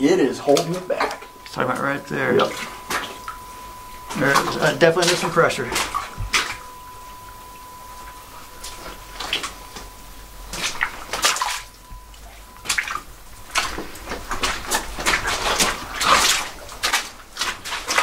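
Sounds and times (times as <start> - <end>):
faint steady high tone: 0.0 - 14.4
footsteps splashing through water: 0.4 - 6.7, 8.0 - 9.9, 10.5 - 18.0.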